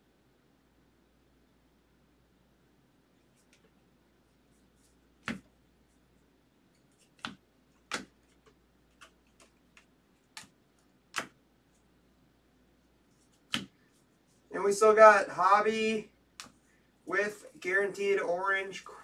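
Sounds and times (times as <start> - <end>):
trading cards snapping: 5.2 - 5.5, 7.0 - 11.4, 13.3 - 13.8, 16.4 - 16.6.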